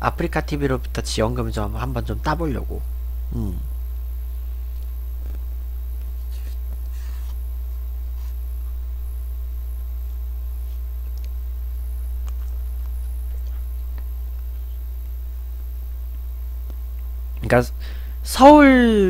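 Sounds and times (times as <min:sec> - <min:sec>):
steady low hum: 0:00.0 - 0:19.0
quiet eating sounds: 0:10.6 - 0:15.4.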